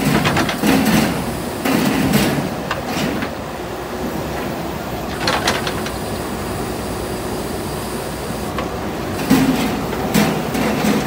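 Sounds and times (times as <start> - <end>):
bucket and arm clanking: 0.0 - 3.4
diesel engine running: 0.0 - 11.0.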